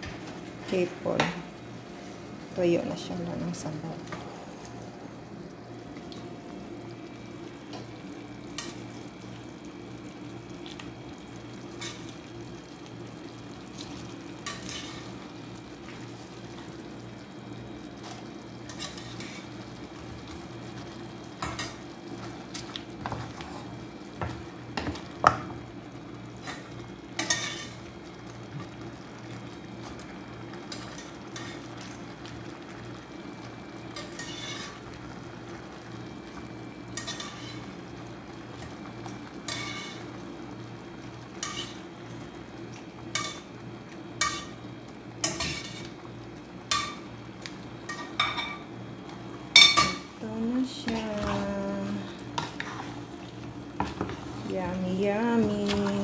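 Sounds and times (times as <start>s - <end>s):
shrimp sizzling: 0.0s - 56.0s
steady low hum: 0.0s - 56.0s
metal utensil scraping a pan: 27.2s - 27.8s, 34.0s - 34.8s, 37.0s - 37.6s, 39.5s - 40.0s.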